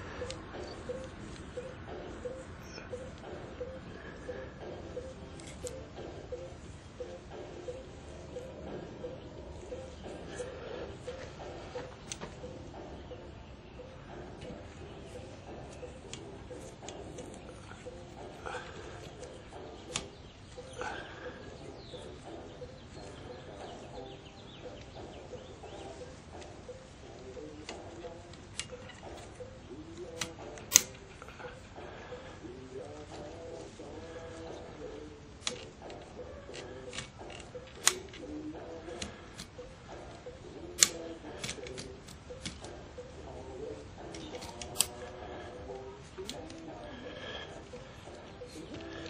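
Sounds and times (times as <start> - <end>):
birds chirping: 0.0 - 49.0
sharp plastic click: 19.0 - 20.2, 30.0 - 31.0, 35.4 - 39.6, 40.8 - 42.8, 44.0 - 45.0.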